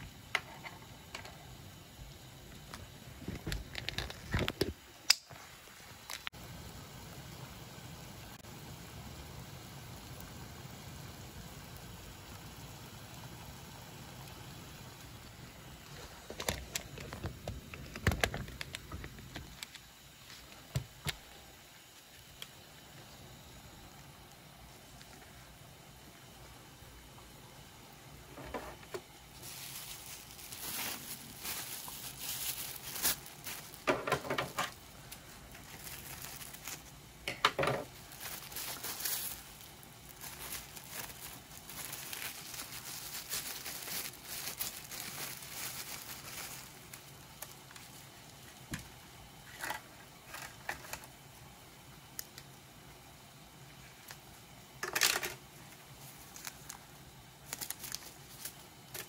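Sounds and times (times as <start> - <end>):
plastic wrapping crinkling: 29.3 - 37.0, 37.8 - 48.7, 55.9 - 59.0.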